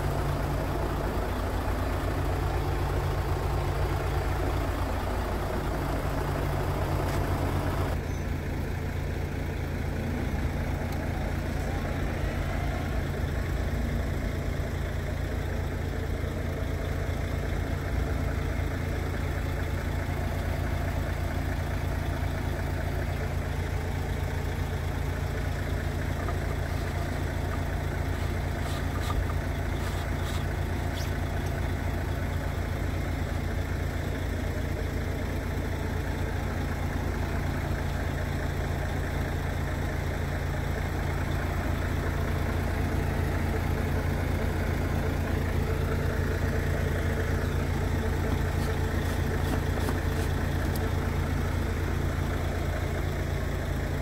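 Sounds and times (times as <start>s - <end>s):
diesel truck engine idling: 0.0s - 54.0s.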